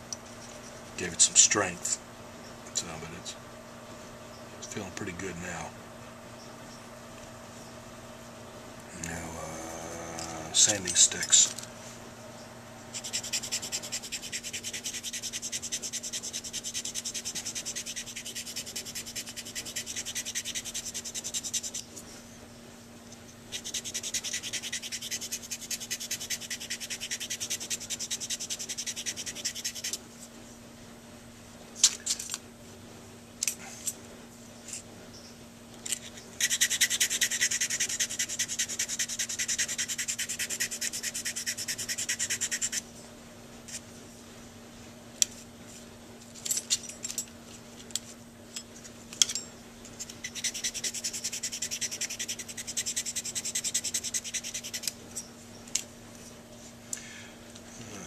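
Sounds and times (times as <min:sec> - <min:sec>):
sanding stick scraping metal: 0:12.9 - 0:21.8, 0:23.5 - 0:30.0, 0:36.4 - 0:42.8, 0:50.0 - 0:54.9.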